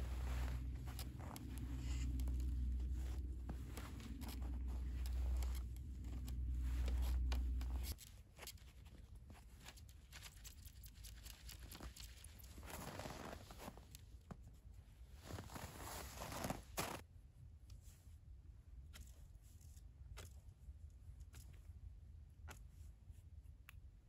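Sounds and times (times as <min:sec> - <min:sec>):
steady low rumble: 0:00.0 - 0:08.0
sticks and rope creaking: 0:00.0 - 0:08.0.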